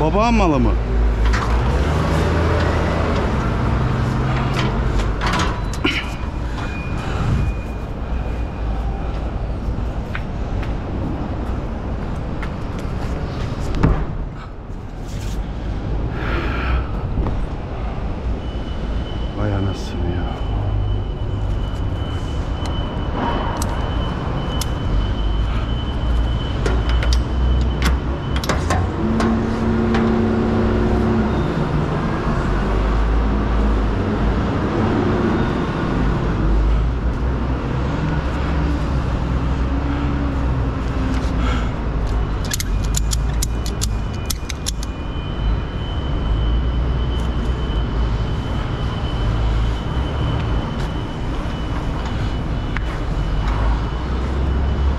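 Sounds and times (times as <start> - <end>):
sharp clicks: 42.4 - 45.0
strap hooks and buckles clinking: 42.4 - 45.0.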